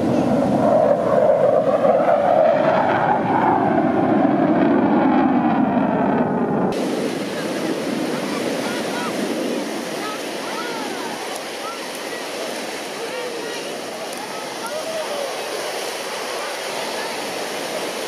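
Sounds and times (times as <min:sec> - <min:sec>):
jet aircraft roar: 0:00.0 - 0:18.0
wind: 0:00.0 - 0:18.0
surf: 0:06.7 - 0:18.0.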